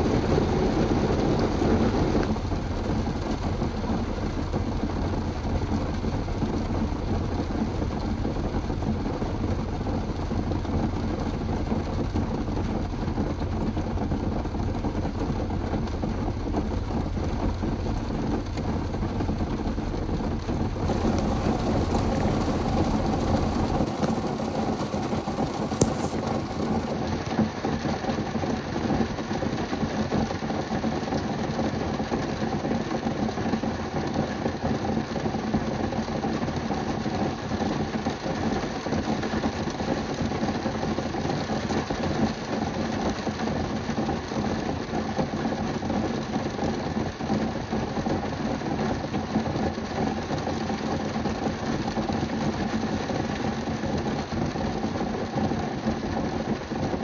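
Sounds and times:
rain on car roof: 0.0s - 57.0s.

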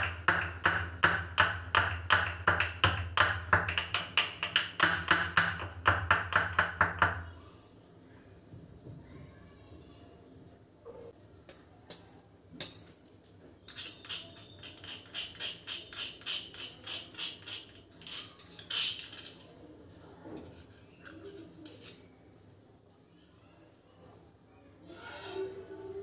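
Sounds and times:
pestle pounding in a mortar: 0.0s - 7.2s.

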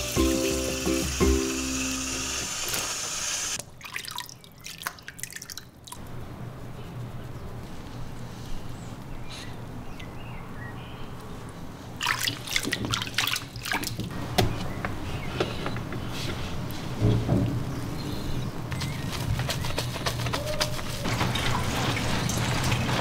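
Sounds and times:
shower sprayer water running: 0.0s - 3.6s
water splashing in plastic tub: 3.6s - 6.0s, 12.0s - 14.1s, 20.1s - 23.0s.

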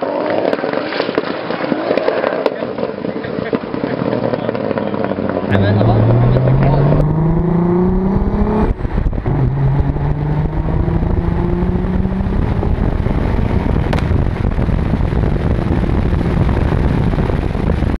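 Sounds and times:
wind and tyre rushing: 0.0s - 18.0s
car engine revving: 3.8s - 17.8s.

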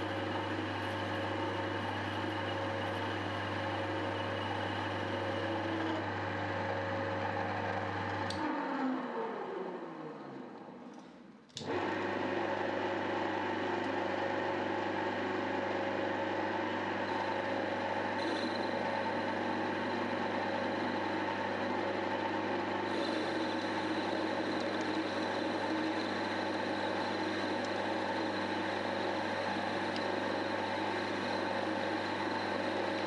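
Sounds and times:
metal lathe motor hum and whine: 0.0s - 10.5s, 11.6s - 33.0s.

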